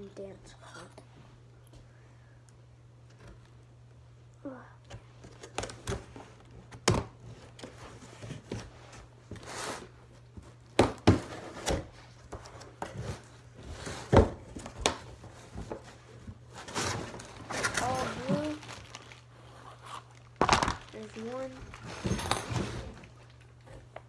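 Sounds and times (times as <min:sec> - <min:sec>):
cardboard rustling and scraping: 0:07.2 - 0:19.2.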